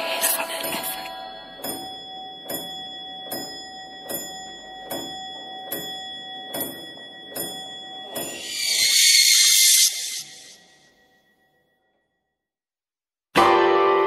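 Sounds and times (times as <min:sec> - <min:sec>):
high held tone: 0:08.1 - 0:10.9
loud hissing swell: 0:08.3 - 0:10.7.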